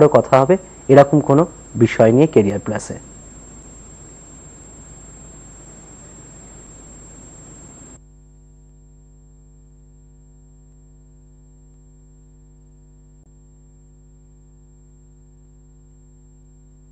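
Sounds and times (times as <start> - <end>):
electrical mains hum: 0.0 - 8.0
high-pitched whine: 0.0 - 8.0
hiss: 0.5 - 8.0.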